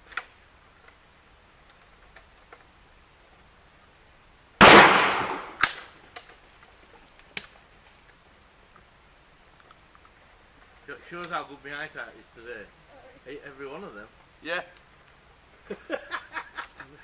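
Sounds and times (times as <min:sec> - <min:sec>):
shotgun shot with echo: 0:04.6 - 0:05.8.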